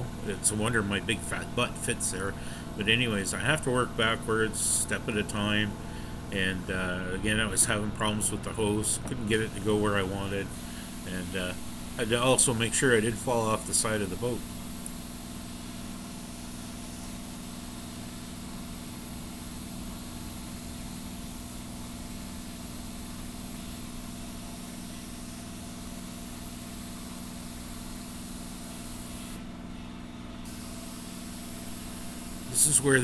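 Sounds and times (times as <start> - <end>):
spray gun hissing: 0.0 - 7.6, 8.6 - 15.5, 30.5 - 33.0
machine hum from air supply: 0.0 - 33.0.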